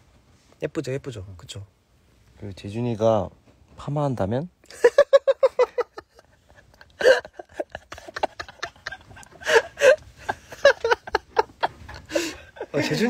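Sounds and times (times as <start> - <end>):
young men laughing: 4.6 - 13.0.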